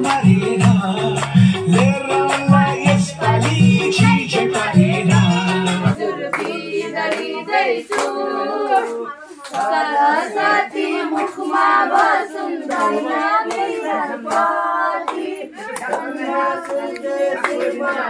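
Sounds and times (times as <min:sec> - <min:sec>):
dance music with heavy bass: 0:00.0 - 0:06.0
group of people singing: 0:00.0 - 0:18.0
people clapping hands: 0:00.0 - 0:18.0.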